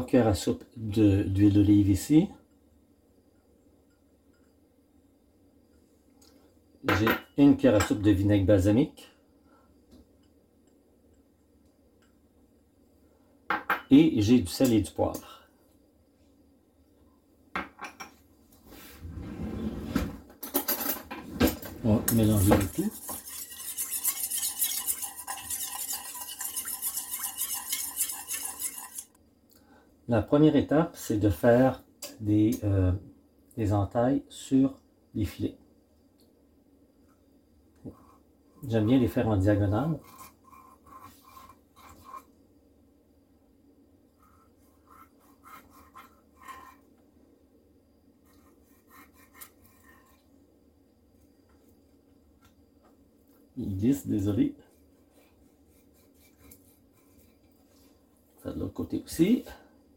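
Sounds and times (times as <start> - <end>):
spoon whisking in metal bowl: 22.1 - 29.2, 39.9 - 42.3
knife scoring fish skin: 48.3 - 50.2.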